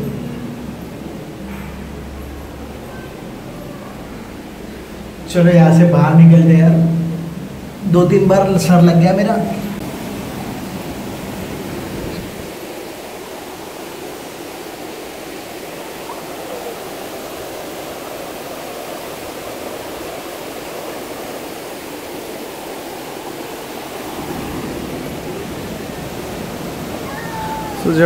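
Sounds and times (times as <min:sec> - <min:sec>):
small waterfall pouring into pool: 0:09.8 - 0:28.0.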